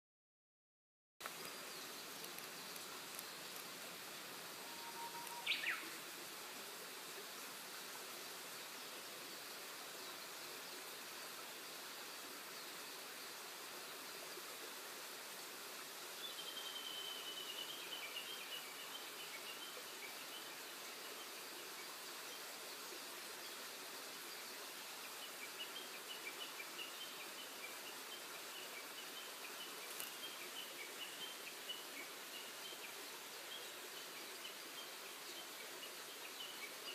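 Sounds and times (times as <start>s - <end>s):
steady hiss: 1.2s - 36.9s
birds chirping: 4.6s - 6.0s.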